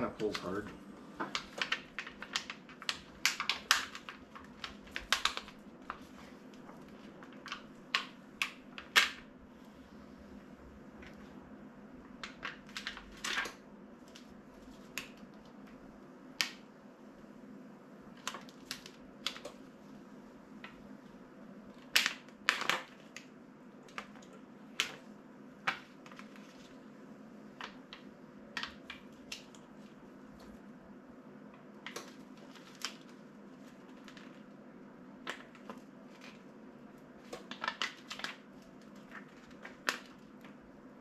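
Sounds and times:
vinyl sheet crackling and rustling: 0:00.0 - 0:09.7, 0:10.4 - 0:16.6, 0:18.1 - 0:41.0
faint steady hum: 0:00.0 - 0:41.0.

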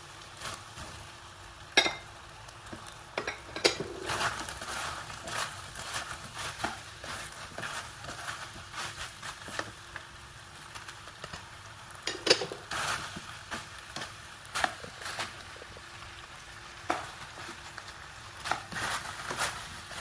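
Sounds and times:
meatballs sizzling in pan: 0:00.0 - 0:20.0
spatula scraping and knocking pan: 0:02.7 - 0:09.8, 0:12.0 - 0:15.8, 0:16.8 - 0:17.6, 0:18.4 - 0:20.0.

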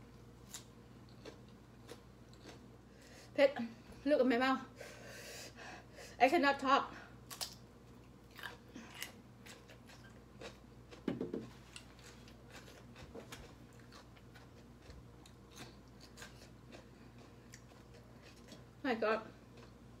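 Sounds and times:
person chewing: 0:00.4 - 0:03.1, 0:07.2 - 0:18.7, 0:19.5 - 0:19.9.

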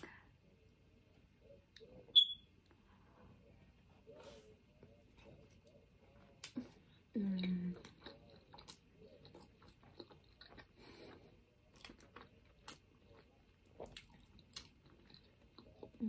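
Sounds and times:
chewing rice: 0:04.2 - 0:16.0.

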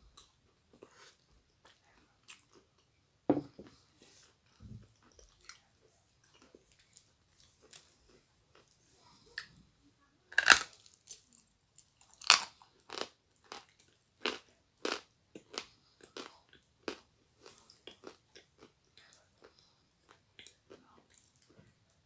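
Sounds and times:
chewing crunches: 0:10.4 - 0:21.6.

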